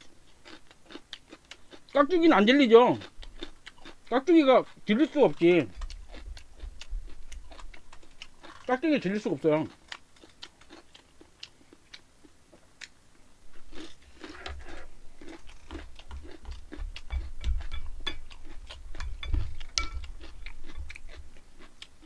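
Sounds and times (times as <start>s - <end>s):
chewing crunchy radish: 0.0s - 22.0s
spoon clinking in bowls: 17.1s - 18.3s, 19.0s - 20.1s.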